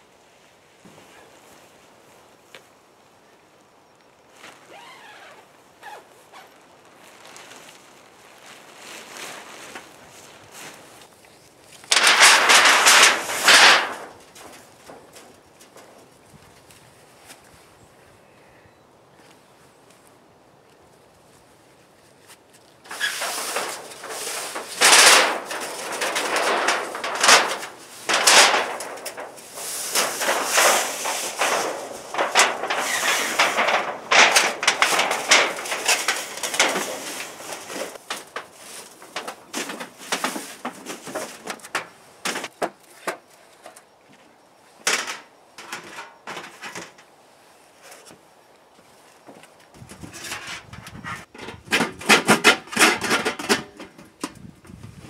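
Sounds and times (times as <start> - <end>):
sheet metal crinkling and scraping: 11.7 - 16.3, 22.8 - 43.8, 44.8 - 47.1, 49.2 - 55.0.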